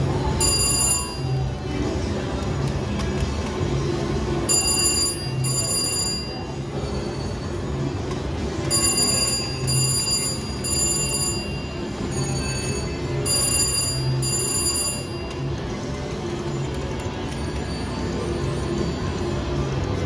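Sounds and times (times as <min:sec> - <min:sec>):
slot machine bell-like chimes: 0:00.2 - 0:01.6, 0:04.4 - 0:07.6, 0:08.6 - 0:15.7, 0:17.3 - 0:19.2.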